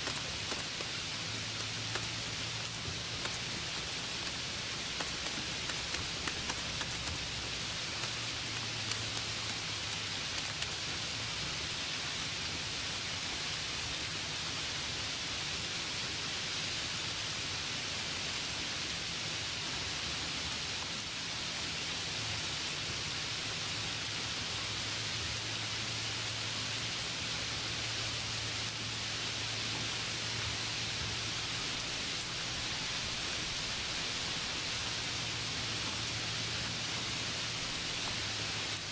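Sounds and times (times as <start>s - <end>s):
light ticks: 0.0s - 1.0s, 1.6s - 10.9s
steady hiss: 0.0s - 38.9s.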